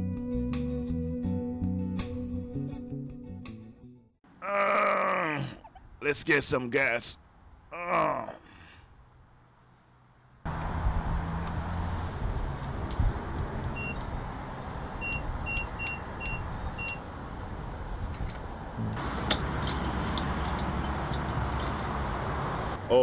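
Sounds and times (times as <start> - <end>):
hum of engines and traffic: 4.3 - 23.0
keypad beeps: 13.8 - 14.1, 15.0 - 17.1.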